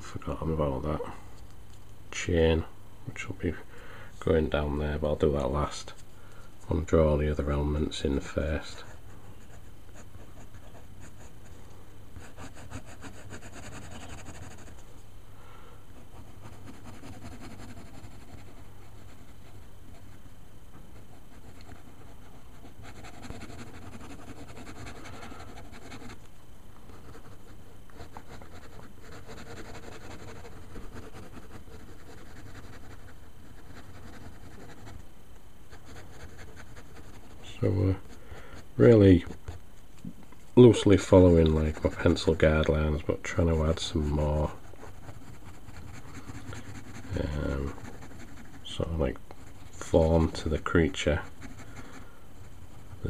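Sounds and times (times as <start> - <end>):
low steady hum: 0.0 - 53.0
ink pen scratching on paper: 12.2 - 14.8, 16.1 - 20.2, 21.0 - 26.2, 27.0 - 35.0, 35.7 - 37.4, 41.6 - 42.4, 44.6 - 53.0.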